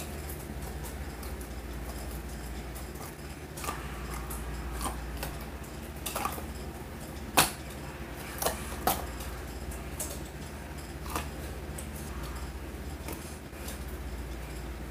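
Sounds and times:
steady low hum: 0:00.0 - 0:14.9.

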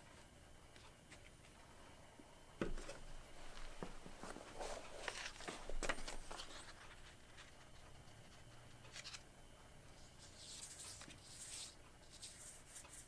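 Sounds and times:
paper rustling: 0:02.8 - 0:09.3, 0:10.0 - 0:13.0.

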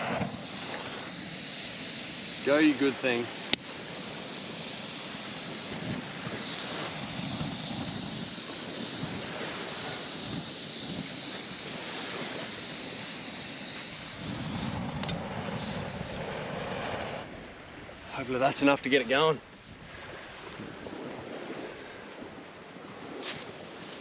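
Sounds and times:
gas burner hissing: 0:00.0 - 0:17.3.

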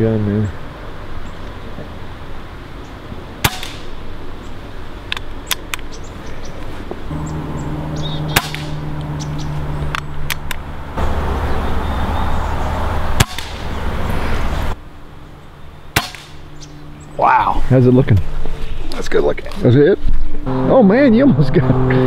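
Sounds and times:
steady low hum: 0:00.0 - 0:22.0
air pistol cracks: 0:03.4 - 0:04.0, 0:08.3 - 0:08.8, 0:13.2 - 0:13.7, 0:16.0 - 0:16.4.

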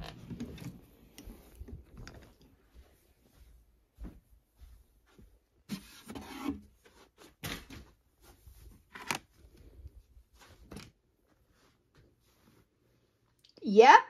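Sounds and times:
rubbing and rustling handling: 0:04.9 - 0:13.4.

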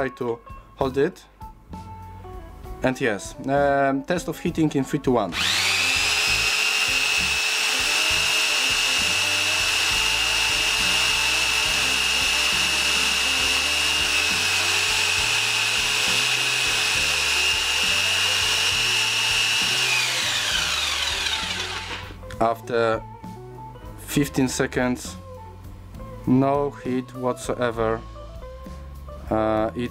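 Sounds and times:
impact wrench motor whine: 0:05.3 - 0:22.2.

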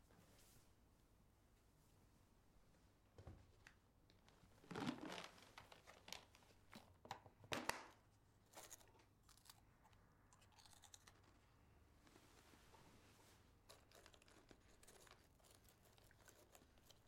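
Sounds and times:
plastic jar crackling: 0:04.6 - 0:06.4.

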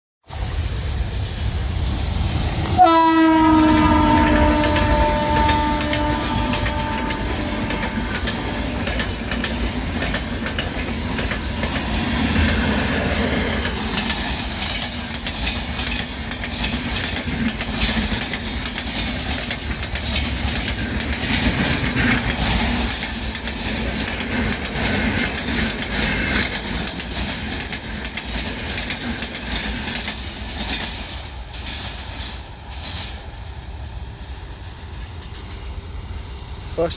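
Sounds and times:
train wheels clattering on rails: 0:00.2 - 0:35.9
train horn: 0:02.7 - 0:09.0.

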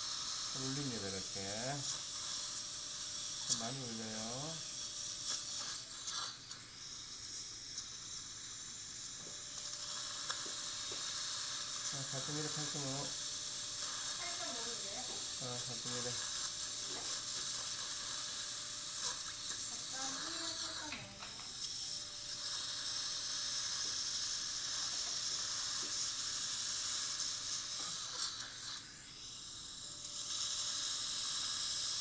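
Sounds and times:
suction tip hissing: 0:00.0 - 0:32.0
drill motor tone: 0:11.9 - 0:17.4.

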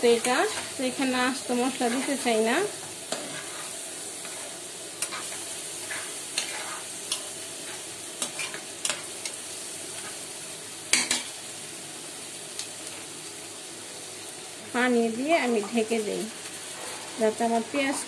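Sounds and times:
onions sizzling in oil: 0:00.0 - 0:18.0
spatula scraping and knocking pan: 0:01.7 - 0:09.1.

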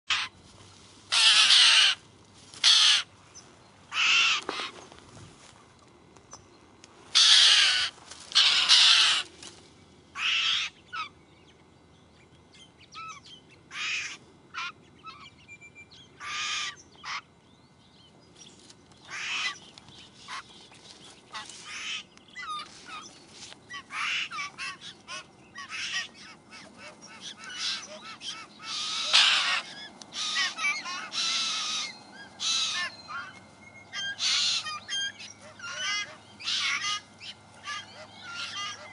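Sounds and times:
birds making harsh scratchy calls: 0:00.1 - 0:00.4, 0:01.0 - 0:03.2, 0:03.9 - 0:05.0, 0:07.1 - 0:09.5, 0:10.2 - 0:11.1, 0:13.7 - 0:15.2, 0:16.2 - 0:17.2, 0:19.0 - 0:38.9.

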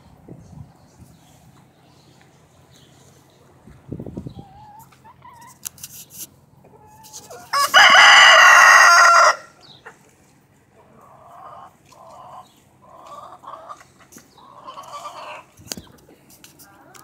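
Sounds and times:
hen clucking: 0:02.7 - 0:17.0
rooster crowing: 0:07.3 - 0:09.6.

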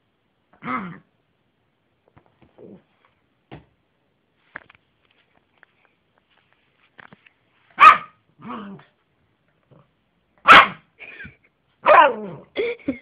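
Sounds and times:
small dog barking: 0:07.8 - 0:08.9, 0:10.4 - 0:10.9, 0:11.8 - 0:12.4.

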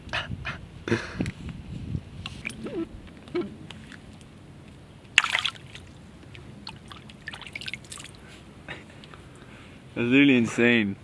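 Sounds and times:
water sloshing and dripping: 0:02.3 - 0:08.4
splash in shallow water: 0:05.1 - 0:06.0, 0:06.6 - 0:08.2.

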